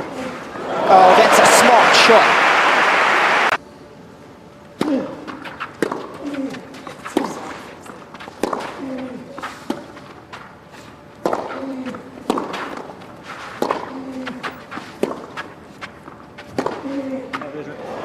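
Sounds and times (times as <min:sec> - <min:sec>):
tennis ball hit by rackets: 0:04.8 - 0:10.0, 0:11.2 - 0:17.5.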